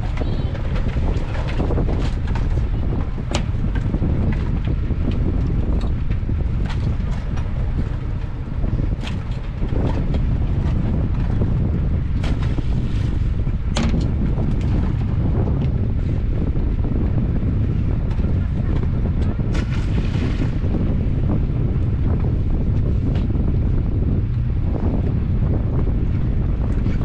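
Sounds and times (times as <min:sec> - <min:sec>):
wind rumbling on microphone: 0:00.0 - 0:27.0.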